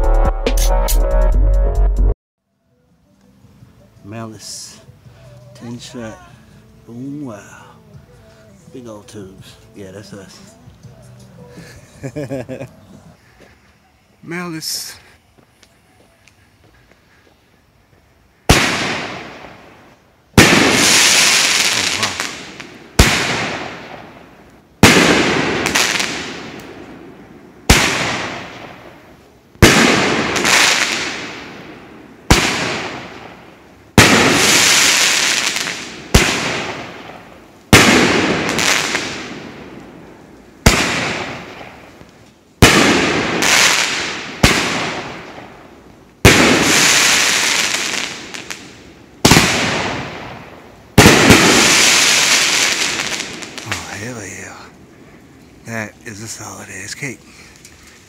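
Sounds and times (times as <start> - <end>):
crackling hiss of fireworks: 2.9 - 58.0
firework bangs: 18.4 - 54.1.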